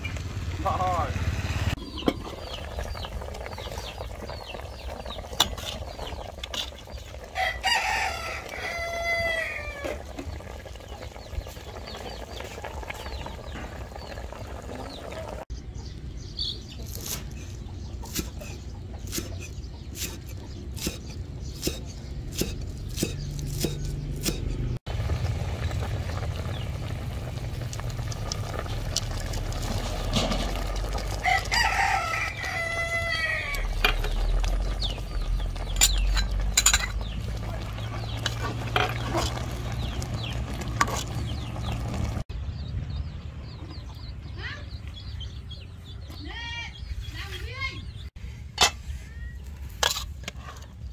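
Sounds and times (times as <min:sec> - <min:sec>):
rooster crowing: 0:07.4 - 0:10.0, 0:31.2 - 0:33.8.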